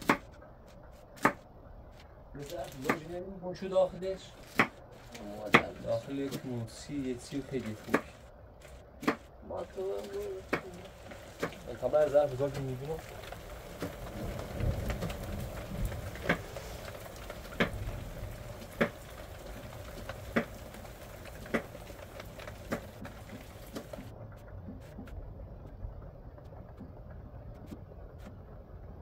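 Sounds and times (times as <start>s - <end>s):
low background noise: 0.0s - 29.0s
sharp knocks: 1.2s - 1.4s, 4.4s - 4.8s, 9.0s - 9.3s.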